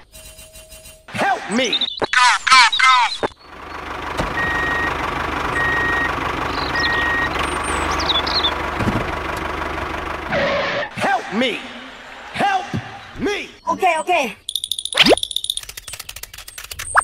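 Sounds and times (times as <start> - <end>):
truck engine running: 3.4 - 13.2
reversing alarm beeping: 4.4 - 7.4.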